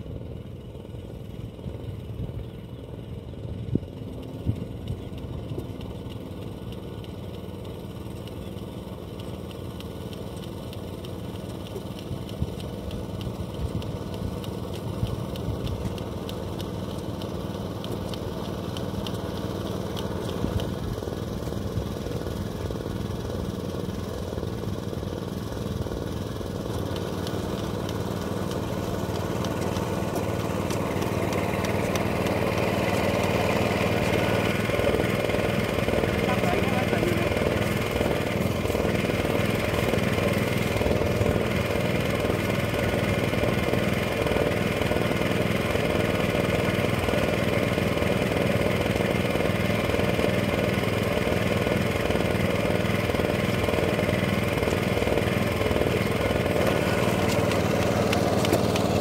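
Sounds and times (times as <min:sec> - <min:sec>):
small engine running: 0:00.0 - 0:59.0.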